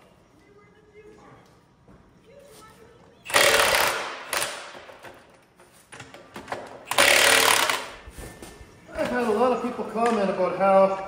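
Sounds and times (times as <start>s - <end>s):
impact wrench hammering: 3.3s - 5.2s, 6.4s - 8.0s.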